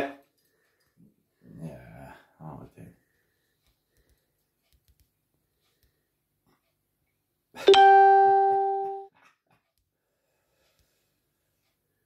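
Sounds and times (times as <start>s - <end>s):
single ringing tone: 7.7s - 9.1s.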